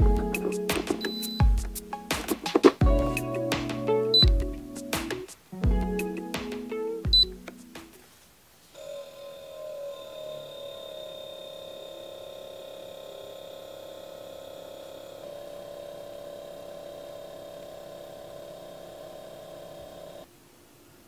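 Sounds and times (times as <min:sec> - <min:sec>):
fridge compressor and fan humming: 0:08.8 - 0:20.2.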